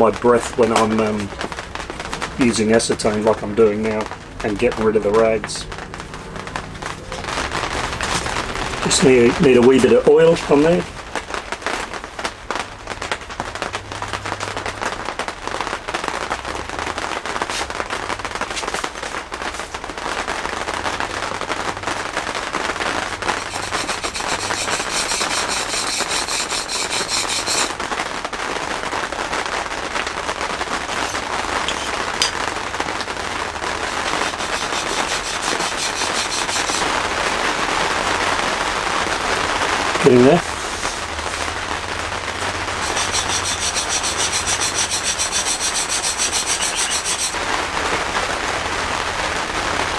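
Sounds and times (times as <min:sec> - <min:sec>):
chisel scraping on sharpening stone: 0:23.4 - 0:27.7, 0:34.4 - 0:36.9, 0:42.8 - 0:47.4.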